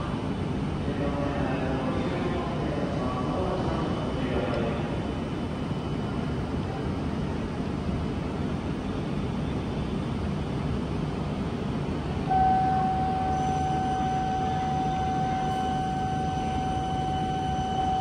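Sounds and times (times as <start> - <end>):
train low rumble: 0.0 - 18.0
steady high tone: 12.2 - 18.0.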